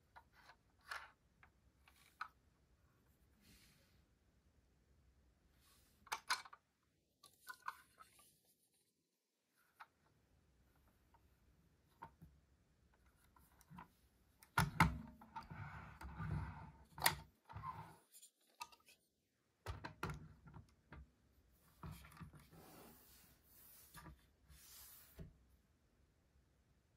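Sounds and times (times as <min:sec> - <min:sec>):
model rubbing on table: 0:22.4 - 0:25.2.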